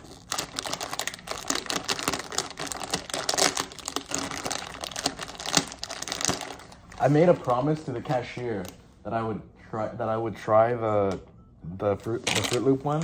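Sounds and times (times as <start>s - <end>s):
plastic chip bag crinkling: 0.0s - 8.8s, 12.2s - 13.0s.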